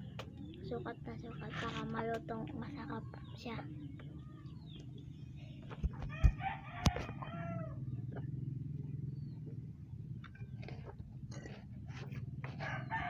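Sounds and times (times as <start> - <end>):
steady low hum: 0.0 - 13.0
rooster crowing: 6.0 - 7.9, 12.5 - 13.0.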